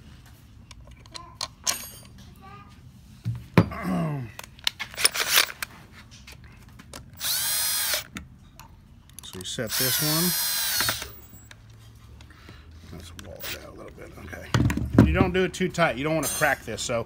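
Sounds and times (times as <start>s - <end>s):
cordless drill driving a screw: 7.2s - 8.1s, 9.6s - 11.5s.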